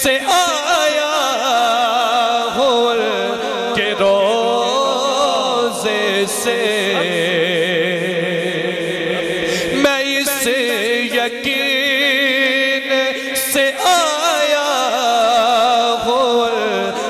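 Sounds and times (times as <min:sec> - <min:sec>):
man singing into a microphone: 0:00.0 - 0:17.0.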